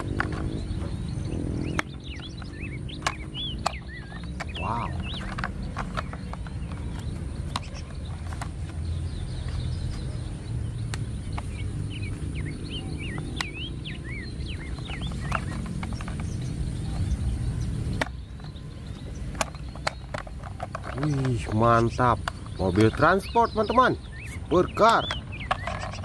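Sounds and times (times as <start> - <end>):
plastic case clicks: 0.0 - 1.0, 1.6 - 10.0, 14.6 - 17.2, 17.9 - 23.8, 24.8 - 26.0
steady low rumble: 0.0 - 23.2
birds chirping: 0.0 - 26.0.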